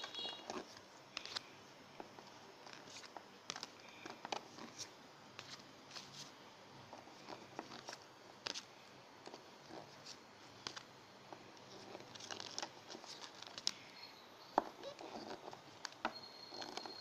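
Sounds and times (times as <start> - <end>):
cards flicking and clicking: 0.3 - 6.3, 7.3 - 8.7, 10.0 - 10.9.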